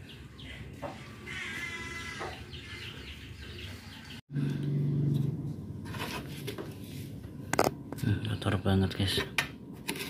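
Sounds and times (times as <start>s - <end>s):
birds chirping: 0.0s - 4.2s.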